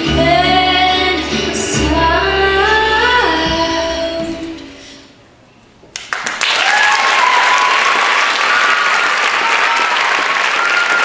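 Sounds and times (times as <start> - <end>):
audience applauding: 5.9 - 11.0
people cheering: 6.2 - 11.0.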